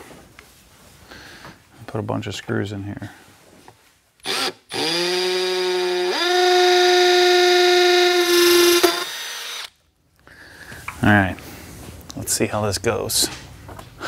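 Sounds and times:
cordless drill whine: 0:04.2 - 0:09.7.

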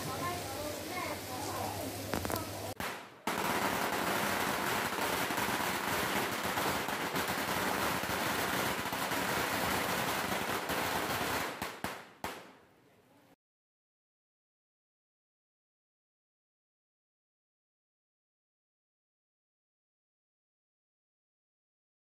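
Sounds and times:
firecrackers crackling: 0:00.0 - 0:12.7.

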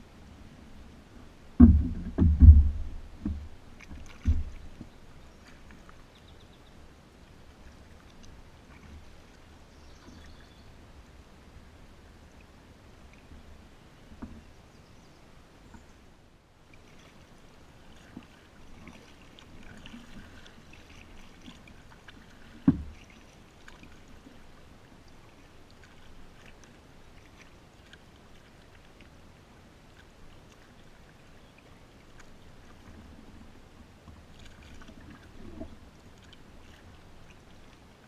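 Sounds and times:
paddle dipping in water: 0:00.0 - 0:38.0
sharp knock: 0:01.6 - 0:02.8.

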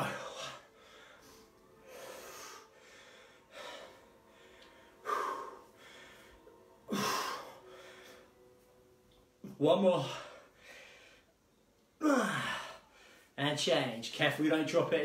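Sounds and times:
man breathing hard: 0:00.0 - 0:08.6, 0:10.0 - 0:11.4, 0:12.0 - 0:13.4.

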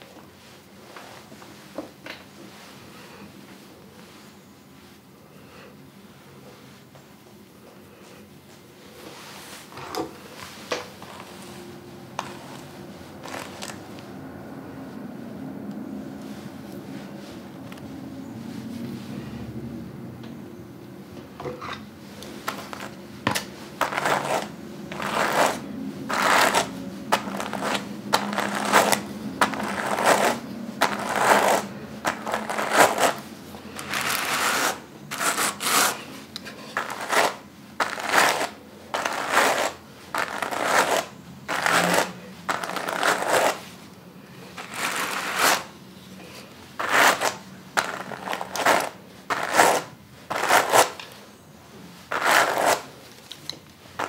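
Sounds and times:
hand cards brushing wool: 0:10.4 - 0:14.0, 0:22.2 - 0:45.7, 0:46.4 - 0:51.2, 0:52.0 - 0:53.0.

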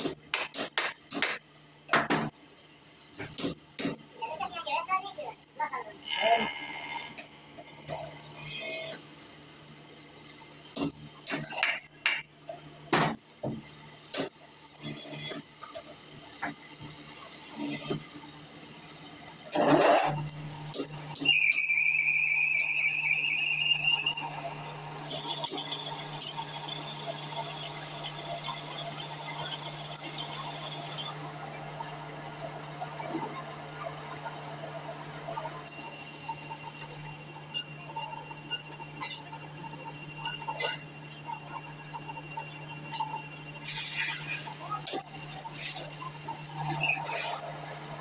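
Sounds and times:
high grinding whine: 0:19.4 - 0:48.0.

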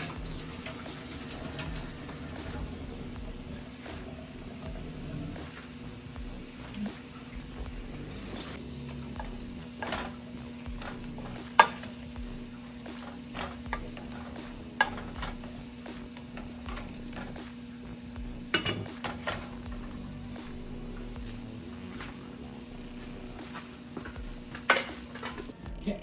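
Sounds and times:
utensil stirring and knocking in pan: 0:00.0 - 0:25.6
faint sizzle: 0:00.0 - 0:26.0
steady low hum: 0:00.0 - 0:26.0.

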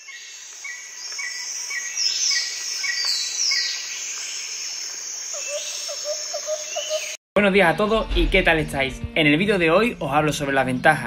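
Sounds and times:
downward-sweeping bird calls: 0:00.1 - 0:07.2.

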